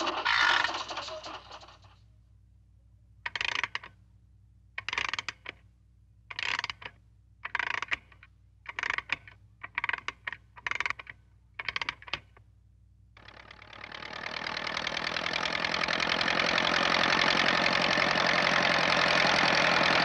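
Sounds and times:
mechanical clicking and rattling: 0.0s - 2.0s, 3.3s - 4.0s, 4.8s - 5.6s, 6.3s - 12.4s.

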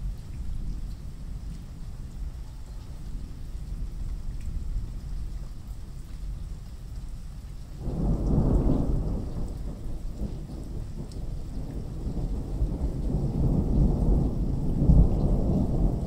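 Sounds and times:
rain: 0.0s - 16.0s
thunder rumbling: 7.8s - 16.0s.

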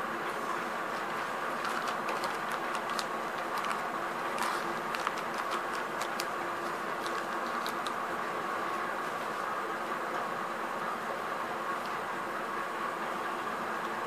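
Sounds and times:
faint hum: 0.0s - 14.0s
plastic packaging crinkling: 1.1s - 8.1s.

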